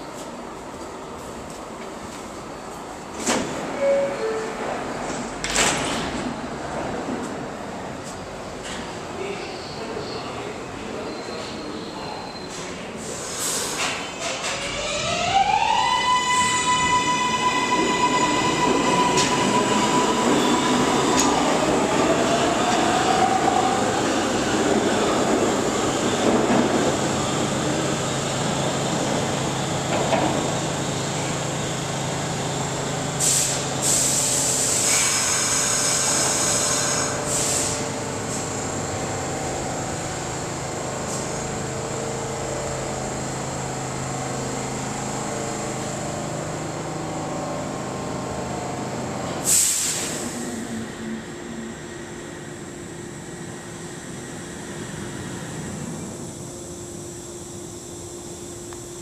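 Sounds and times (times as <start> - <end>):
train cars rumbling on rails: 16.2 - 52.0.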